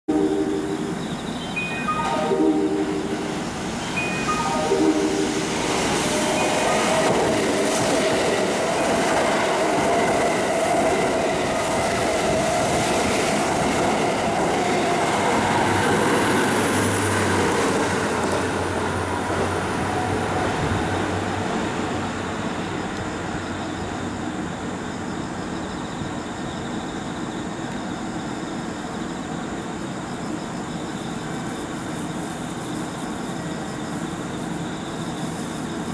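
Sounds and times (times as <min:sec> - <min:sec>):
train whine: 0:00.1 - 0:24.2
train wheels rumbling on rail: 0:02.7 - 0:26.2, 0:26.8 - 0:35.9.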